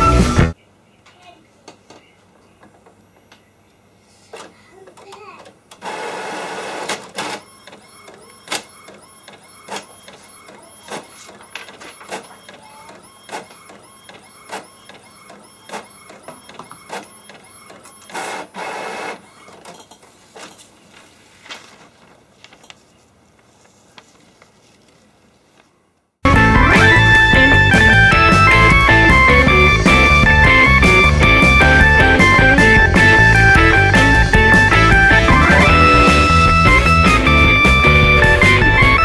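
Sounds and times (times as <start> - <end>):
printer carriage whine: 5.7 - 21.0, 26.4 - 39.0
printer whirring: 5.7 - 21.1.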